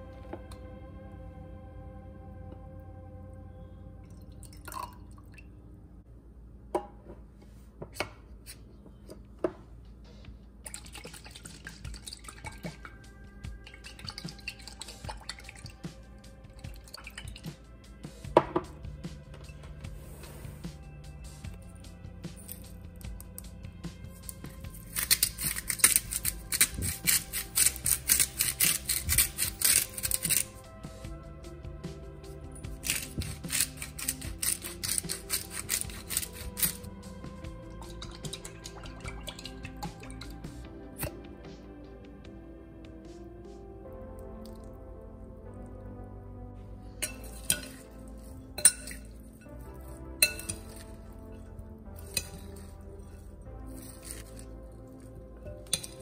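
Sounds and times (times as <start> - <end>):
liquid pouring into a jar: 4.1 - 5.5, 10.6 - 13.0, 13.6 - 15.8, 16.6 - 17.6, 37.6 - 40.5
liquid sloshing in shaken jar: 10.6 - 13.0, 13.6 - 15.8, 24.2 - 30.6, 32.7 - 37.0, 37.6 - 40.5
salt grinder crunching: 24.3 - 30.6, 32.7 - 37.0, 52.0 - 56.0.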